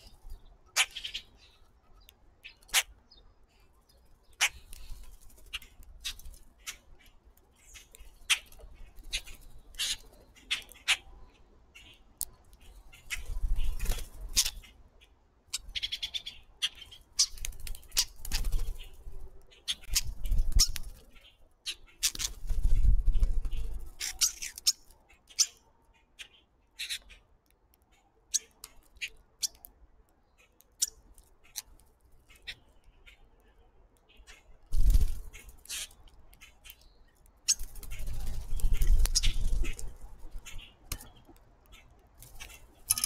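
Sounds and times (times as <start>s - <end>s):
birds pecking clicks: 3.8s - 11.1s, 15.6s - 25.6s, 26.8s - 43.0s
birds fluttering wings: 4.4s - 6.9s, 13.0s - 14.6s, 17.2s - 21.2s, 22.0s - 24.7s, 34.7s - 36.0s, 37.5s - 41.2s, 42.2s - 43.0s.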